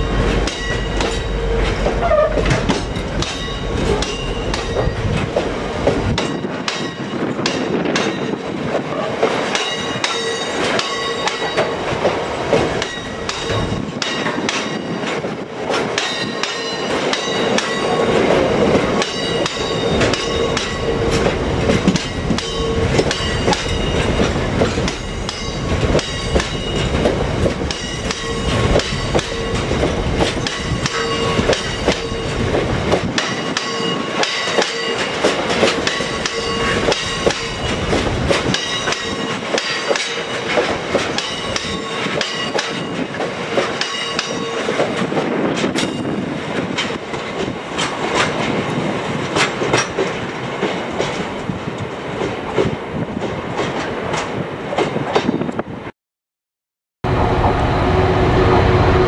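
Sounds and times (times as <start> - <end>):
high wheel squealing: 0.0 - 5.1
wheels clattering over rail joints: 0.0 - 51.5
freight train rumbling past: 0.0 - 55.9, 57.0 - 59.0.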